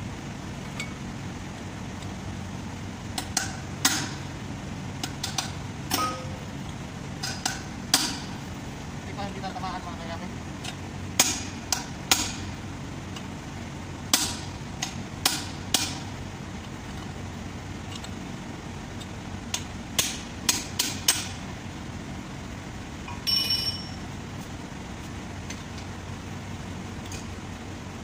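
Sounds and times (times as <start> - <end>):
hammer striking metal: 5.9 - 6.5
ringing metallic rattle: 5.9 - 6.5.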